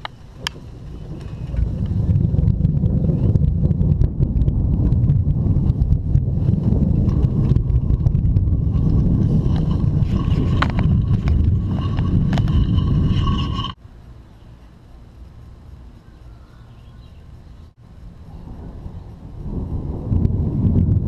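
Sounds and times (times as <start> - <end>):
rolling thunder: 0.3 - 13.8, 18.1 - 21.0.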